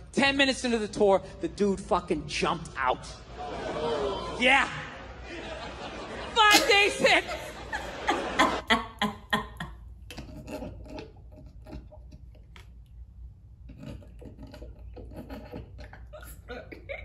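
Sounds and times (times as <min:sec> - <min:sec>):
woman laughing: 0:05.3 - 0:09.8, 0:16.2 - 0:17.0.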